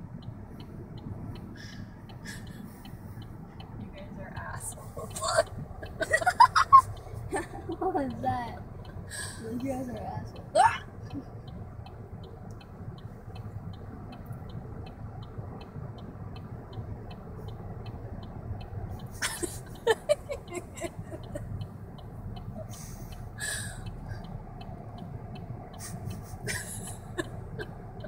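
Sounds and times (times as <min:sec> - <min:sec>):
car cabin rumble: 0:00.0 - 0:28.0
soft even ticking: 0:00.0 - 0:28.0
woman laughing: 0:05.1 - 0:08.0, 0:19.2 - 0:21.4, 0:25.9 - 0:27.8
woman hiccuping: 0:10.6 - 0:10.8.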